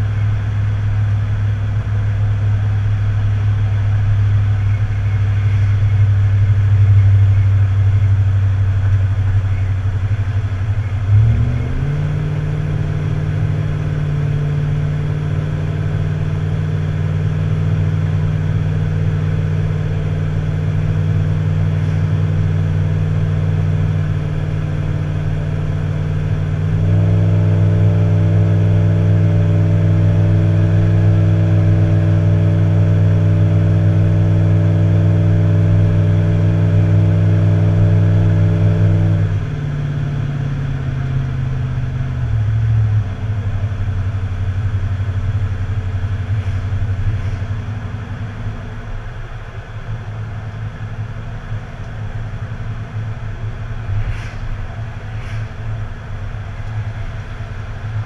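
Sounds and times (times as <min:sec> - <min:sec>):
vehicle engine running while driving: 0:00.0 - 0:58.0.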